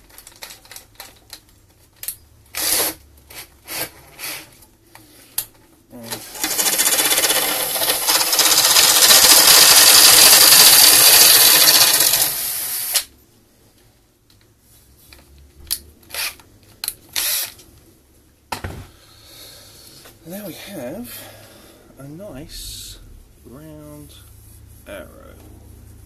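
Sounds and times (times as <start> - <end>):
drill shaving wooden dowel: 6.2 - 13.1, 17.2 - 17.5.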